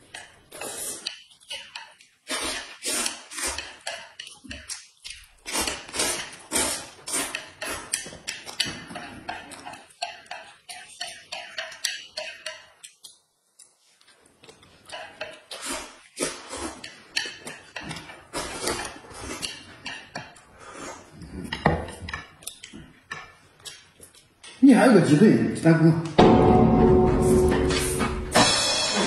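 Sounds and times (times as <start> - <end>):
slurping and mouth smacking: 0.2 - 12.0.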